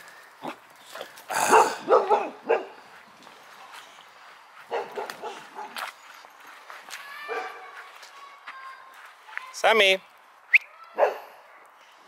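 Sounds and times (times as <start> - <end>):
dog barking: 1.4 - 2.8, 4.7 - 5.8, 7.3 - 7.6, 11.0 - 11.3.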